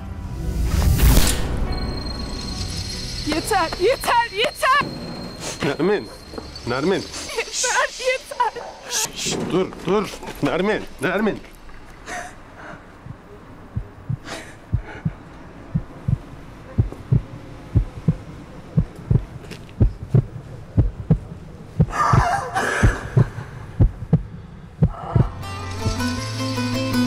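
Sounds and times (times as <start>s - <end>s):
woman sobbing: 7.1s - 9.1s, 21.9s - 23.7s
heartbeat thuds: 13.0s - 25.4s.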